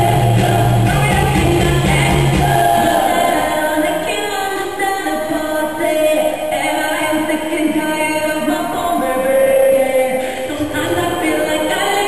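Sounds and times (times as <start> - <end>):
heavy bass line: 0.0 - 3.8
person singing: 0.0 - 12.0.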